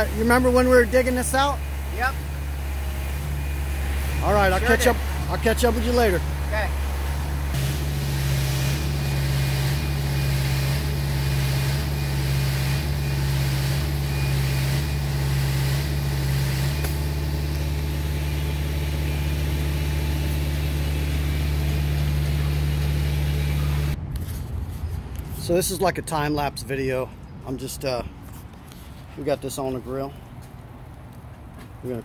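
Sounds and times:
concrete pump engine drone: 0:00.0 - 0:25.4.

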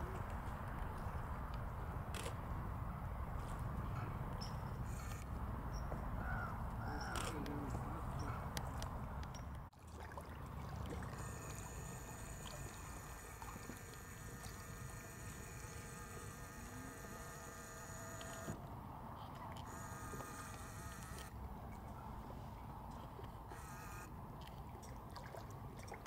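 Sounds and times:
steady buzzing hum: 0:00.0 - 0:05.9, 0:11.0 - 0:19.0, 0:19.6 - 0:21.4, 0:23.4 - 0:24.2.

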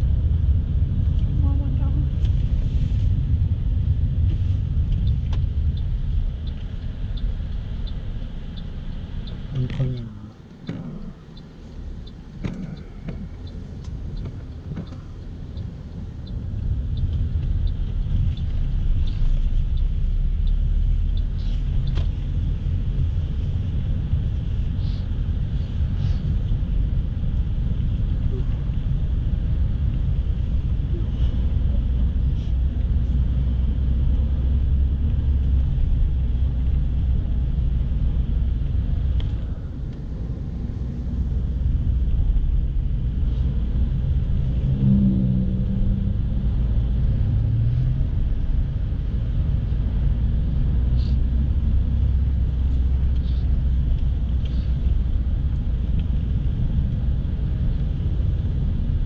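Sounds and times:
car engine and road rumble: 0:00.0 - 0:59.0
engine note rising: 0:43.9 - 0:47.8.

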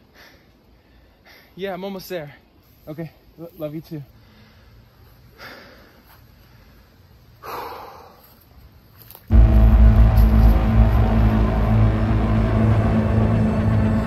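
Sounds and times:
soft breaths: 0:00.0 - 0:08.7
ominous film score music: 0:09.3 - 0:14.0.

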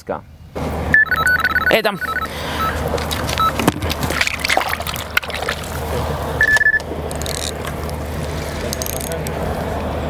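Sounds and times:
bite alarm beeps: 0:00.9 - 0:02.8, 0:03.4 - 0:03.6, 0:06.4 - 0:06.8
reel clicks: 0:06.4 - 0:09.4.

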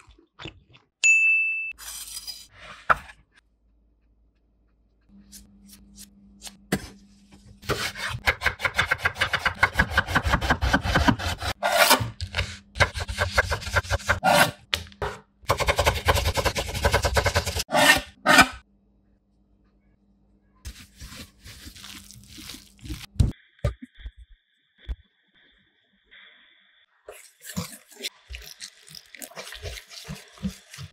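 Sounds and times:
vegetables cut on wooden board: 0:07.6 - 0:18.6.

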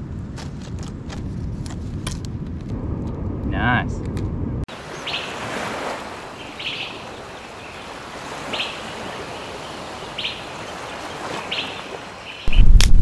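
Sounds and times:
surf breaking on reef: 0:04.7 - 0:12.6
bird chirping: 0:04.9 - 0:05.4, 0:06.3 - 0:12.7.

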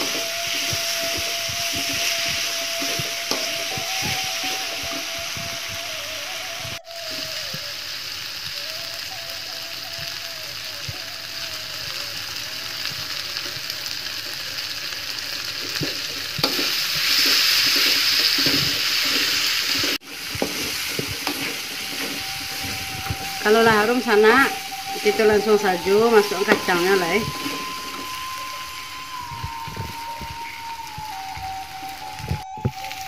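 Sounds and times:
metal spoon scraping wok: 0:00.0 - 0:05.3, 0:15.6 - 0:28.9
spice paste sizzling in oil: 0:00.0 - 0:33.0.

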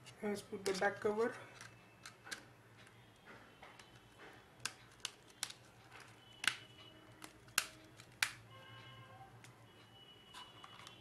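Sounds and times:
plastic phone cover snapping on: 0:07.2 - 0:08.4.

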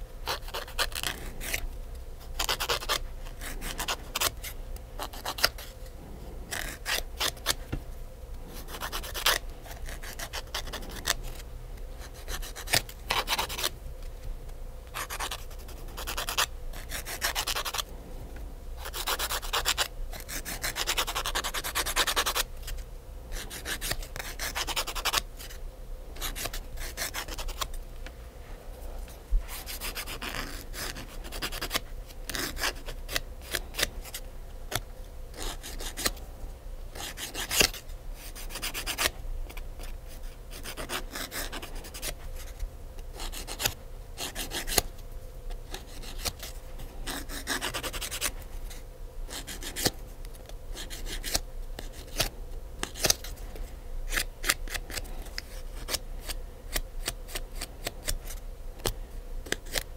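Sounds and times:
nail file rasping: 0:00.3 - 0:01.6, 0:02.4 - 0:05.7, 0:08.5 - 0:11.4, 0:12.0 - 0:13.7, 0:14.9 - 0:17.9, 0:18.8 - 0:22.5, 0:23.3 - 0:25.6, 0:26.2 - 0:27.7, 0:29.6 - 0:36.2, 0:37.0 - 0:42.2, 0:43.1 - 0:44.9, 0:45.7 - 0:48.4, 0:49.3 - 0:50.0, 0:50.7 - 0:53.4, 0:54.1 - 0:59.9.

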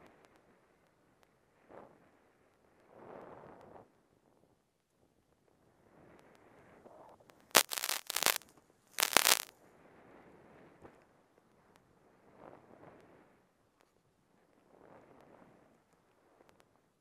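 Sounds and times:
crackling rush of spraying powder: 0:07.5 - 0:08.4, 0:09.0 - 0:09.5.

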